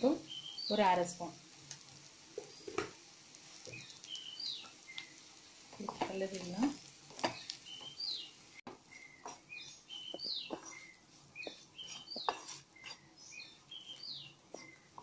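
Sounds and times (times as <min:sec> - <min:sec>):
wooden spatula scraping a pan: 0:04.6 - 0:08.0, 0:08.6 - 0:15.0.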